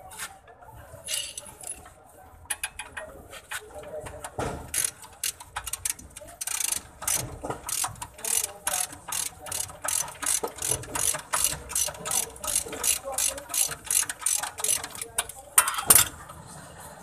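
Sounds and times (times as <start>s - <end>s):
socket ratchet clicking: 4.7s - 16.1s.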